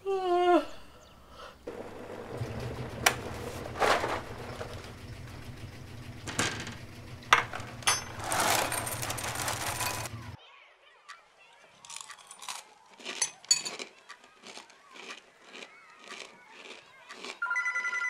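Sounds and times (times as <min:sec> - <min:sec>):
low mechanical hum: 0:00.9 - 0:10.4
rustling clattering bursts: 0:01.8 - 0:10.4.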